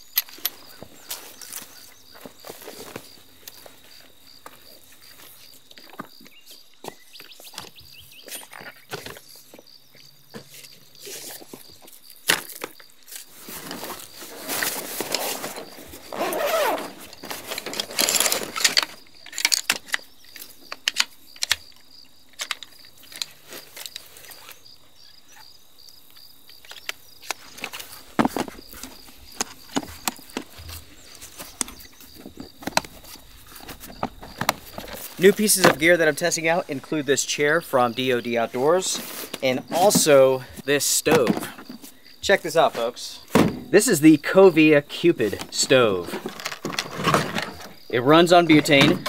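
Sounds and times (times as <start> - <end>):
nylon bag rustling: 13.2 - 19.0
camp chair frame clicks and knocks: 15.0 - 24.0, 26.1 - 36.0, 41.0 - 41.8, 43.3 - 43.8, 48.5 - 49.0.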